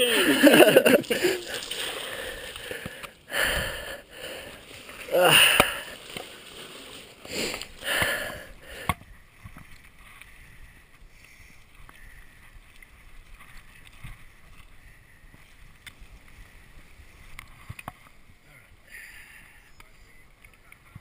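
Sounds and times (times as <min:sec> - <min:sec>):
bike tyres rolling on dirt: 0:00.0 - 0:18.4.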